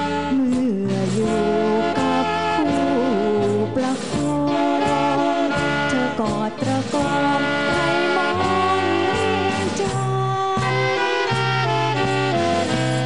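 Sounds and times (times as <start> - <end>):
woman singing: 0.0 - 12.0
dance band with saxophone and brass: 0.0 - 13.0.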